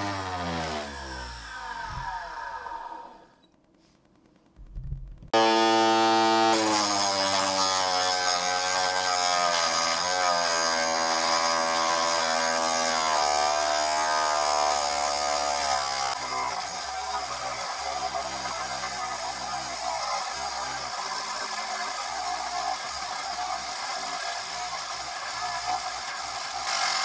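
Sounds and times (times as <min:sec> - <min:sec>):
electric motor high whine: 0:00.0 - 0:03.4, 0:05.4 - 0:13.3
abrasive disc grinding steel: 0:05.4 - 0:27.0.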